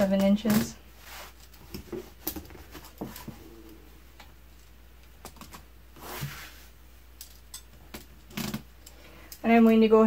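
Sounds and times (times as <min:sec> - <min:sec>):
soft fabric rustle: 0:00.0 - 0:04.8, 0:05.9 - 0:07.0.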